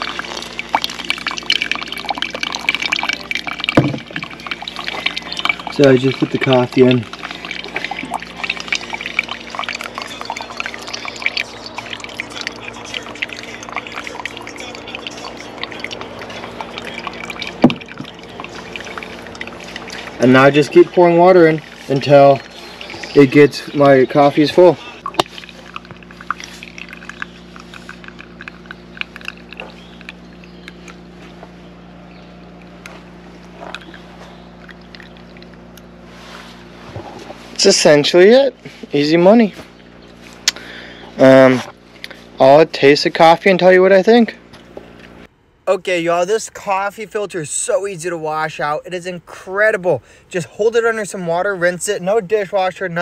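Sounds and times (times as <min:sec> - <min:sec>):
coffee dripping into metal mug: 0:00.0 - 0:31.1, 0:32.0 - 0:35.9
steady low hum: 0:00.0 - 0:53.0.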